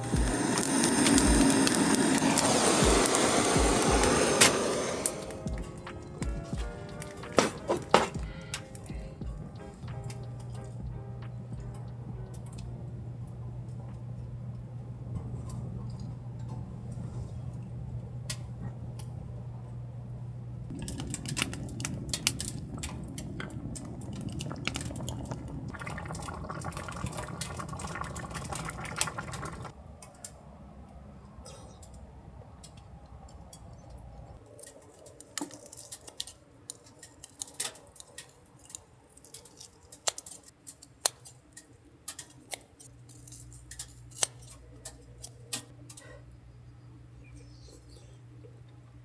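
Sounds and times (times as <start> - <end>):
low steady hum: 0.0 - 34.4, 41.4 - 49.0
kitchen scissors snipping: 34.6 - 46.0.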